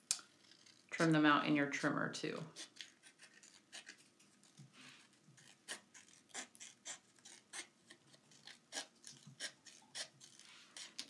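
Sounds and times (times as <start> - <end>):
scissors snipping paper: 2.5 - 4.7, 5.3 - 11.0.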